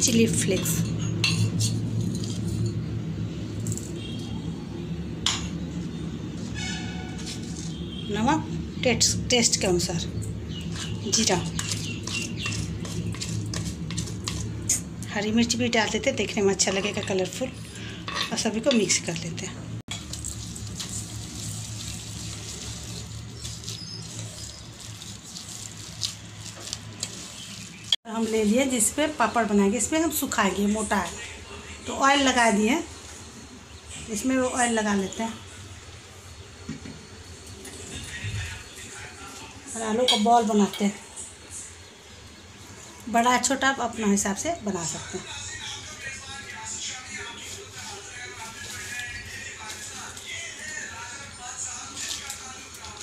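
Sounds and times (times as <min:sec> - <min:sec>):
utensils clinking on metal bowl: 0:00.1 - 0:02.9, 0:03.5 - 0:04.0, 0:10.6 - 0:14.8, 0:16.2 - 0:28.0, 0:40.0 - 0:41.0
hand mashing potato in bowl: 0:10.6 - 0:14.8, 0:20.0 - 0:28.4, 0:46.9 - 0:53.0.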